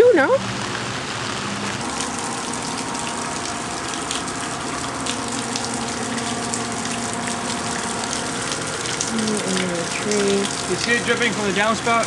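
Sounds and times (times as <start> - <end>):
rainwater rushing over ground: 0.0 - 12.0.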